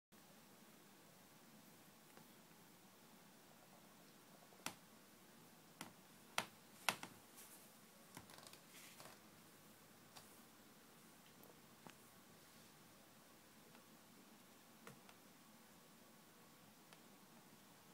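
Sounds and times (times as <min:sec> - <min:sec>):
faint rustle: 0:06.7 - 0:09.4
soft clicks: 0:16.8 - 0:17.1.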